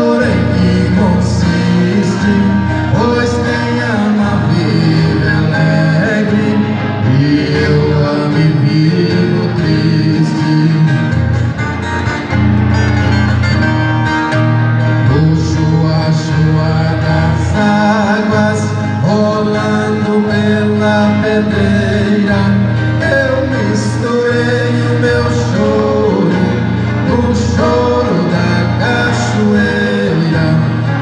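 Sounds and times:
plucked and strummed guitars: 0:00.0 - 0:31.0.

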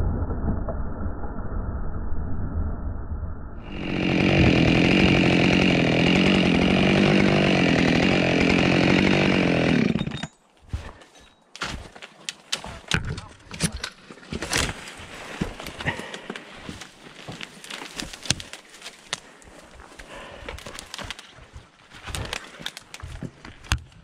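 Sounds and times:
chainsaw running: 0:03.6 - 0:10.3
footsteps crunching through branches: 0:14.4 - 0:23.4.

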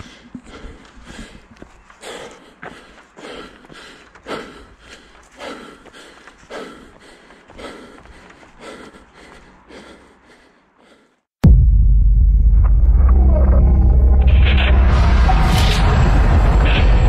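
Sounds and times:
runner breathing hard: 0:00.0 - 0:11.4.

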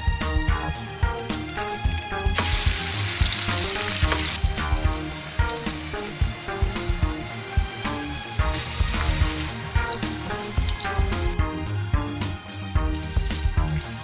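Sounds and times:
onions sizzling in a pan: 0:00.8 - 0:11.4.

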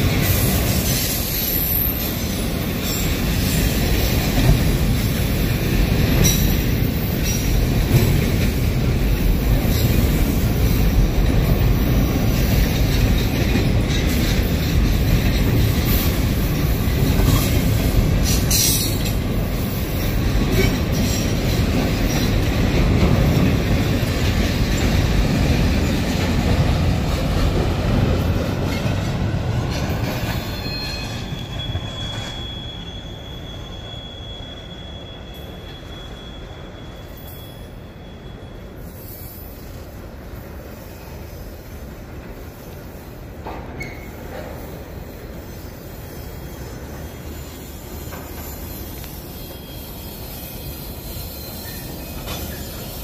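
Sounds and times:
train cars clanking: 0:00.0 - 0:53.0
train wheels rumbling on rails: 0:00.0 - 0:53.0
high wheel squeal: 0:00.1 - 0:04.2, 0:05.2 - 0:07.8, 0:15.2 - 0:22.5, 0:28.6 - 0:40.0, 0:43.8 - 0:53.0.

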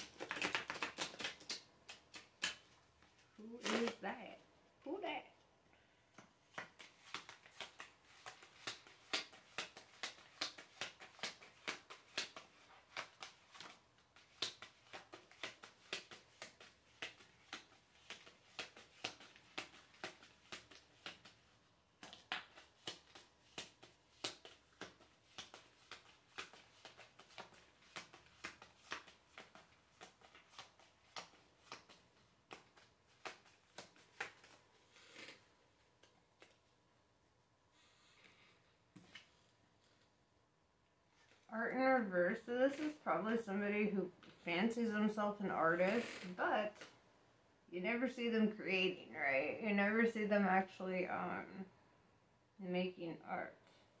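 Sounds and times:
cards being shuffled: 0:00.0 - 0:04.0, 0:06.2 - 0:36.7.

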